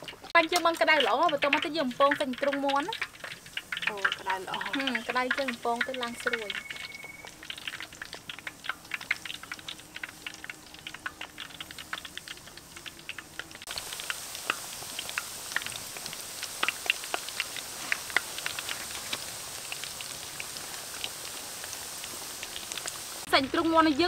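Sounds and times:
chicken deep-frying in oil: 0:00.0 - 0:24.0.

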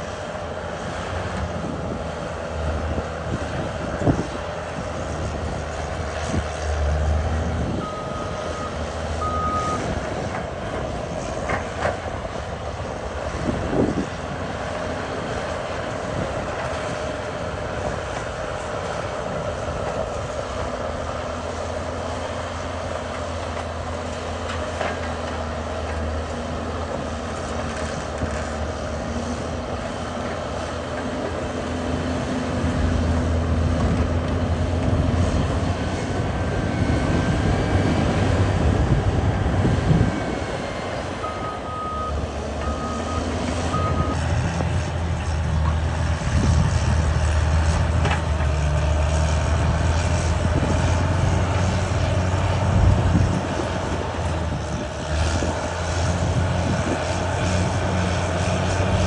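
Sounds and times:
bulldozer diesel engine running: 0:00.0 - 0:59.0.

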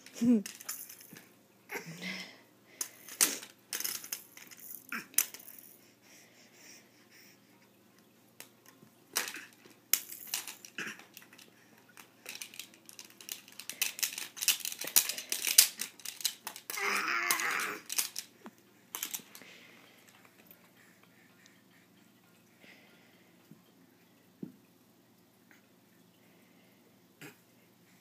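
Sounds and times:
plastic stick clattering on toys: 0:02.8 - 0:05.6, 0:08.4 - 0:19.5.

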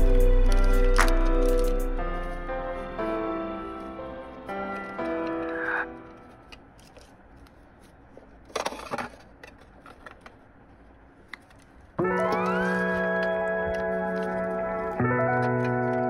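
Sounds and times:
loud background music: 0:00.0 - 0:04.6
sticker sheets rustling: 0:04.7 - 0:16.0.

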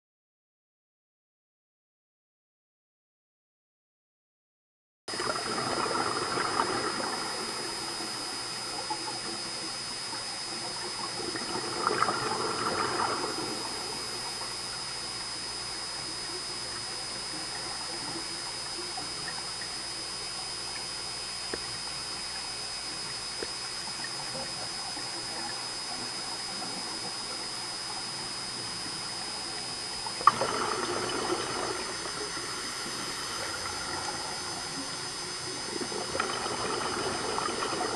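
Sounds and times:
regulator bubbles rushing: 0:05.1 - 0:37.9
thin high whine: 0:05.1 - 0:37.9
underwater hiss: 0:05.2 - 0:14.8, 0:23.8 - 0:37.9.

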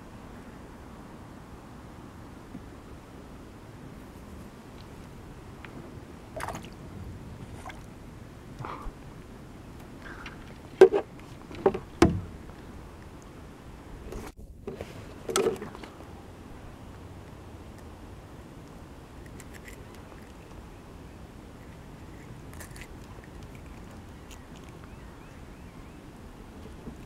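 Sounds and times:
knocks on kayak hull: 0:11.6 - 0:12.3.

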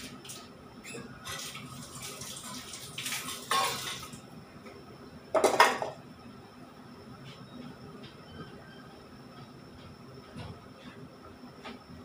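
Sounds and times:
water running: 0:01.3 - 0:04.2
dishes and utensils clattering: 0:03.0 - 0:04.2, 0:05.4 - 0:06.0.

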